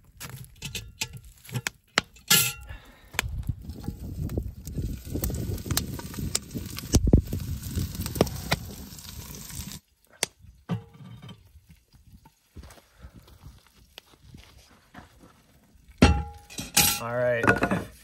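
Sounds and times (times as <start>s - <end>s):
crackling wood fire: 0.0s - 18.0s
wind buffeting microphone: 3.2s - 8.9s.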